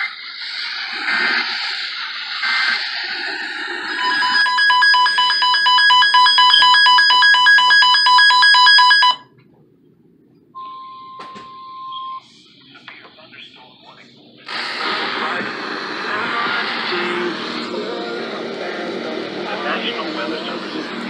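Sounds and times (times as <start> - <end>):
shrill electronic alarm beeping: 3.9 - 9.2, 10.6 - 12.3
steady single-pitch tone: 4.0 - 9.2.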